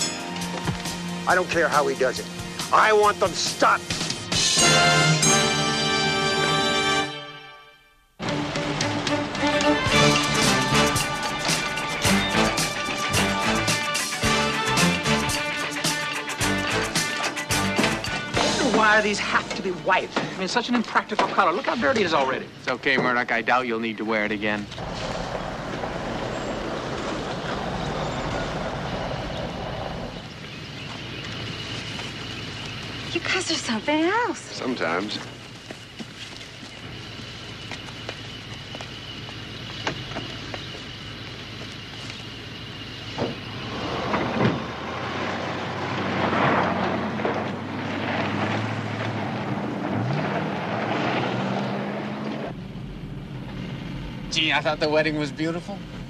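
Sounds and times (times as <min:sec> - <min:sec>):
tyres on gravel: 0:00.0 - 0:05.0, 0:08.2 - 0:56.0
van engine running: 0:00.0 - 0:07.1, 0:08.2 - 0:56.0
van doors shutting: 0:16.5 - 0:23.2, 0:43.0 - 0:49.2
rushing noise: 0:24.6 - 0:30.4.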